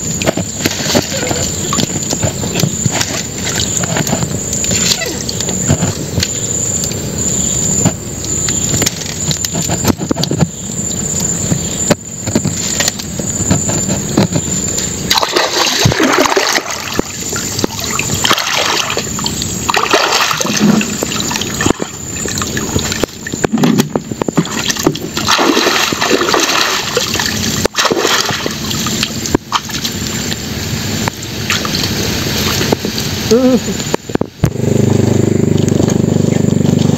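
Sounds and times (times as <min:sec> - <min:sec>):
wading through water splashing: 0:00.0 - 0:06.9, 0:11.6 - 0:34.4
steady rough noise: 0:00.0 - 0:36.9.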